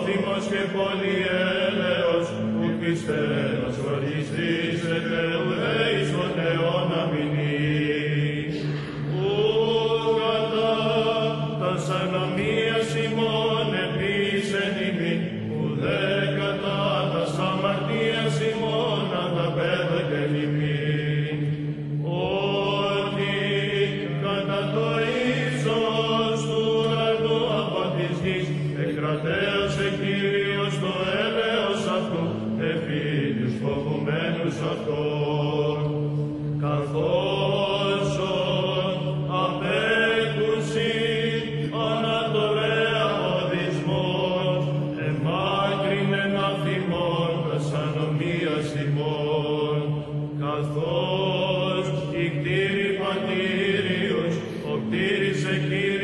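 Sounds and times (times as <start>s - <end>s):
low held drone: 0.0s - 56.0s.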